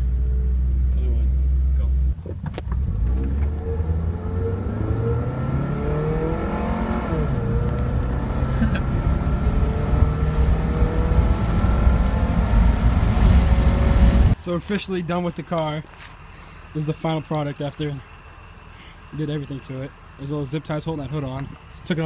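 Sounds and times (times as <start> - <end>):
gearbox shifting up: 2.1 - 12.6
car engine accelerating hard: 2.1 - 14.4.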